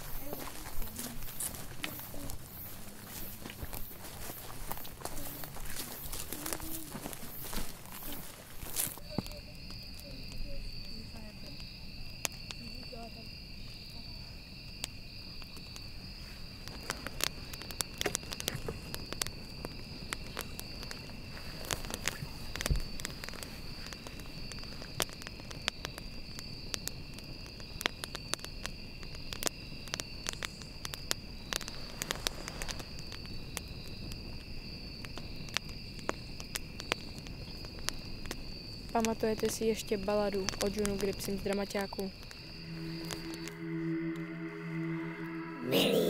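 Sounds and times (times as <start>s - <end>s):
campfire crackling and popping: 0.0s - 45.8s
night insects trilling: 0.0s - 46.0s.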